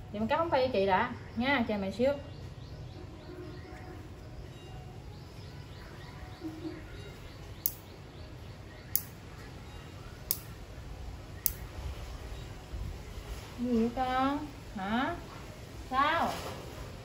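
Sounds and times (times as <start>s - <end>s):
nail clipper clicks: 7.6s - 7.8s, 10.3s - 10.6s, 11.4s - 11.6s.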